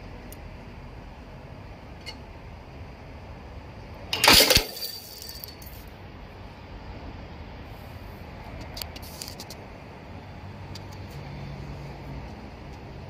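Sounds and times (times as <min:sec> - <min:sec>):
riveting machine metallic clash: 0:04.1 - 0:05.6.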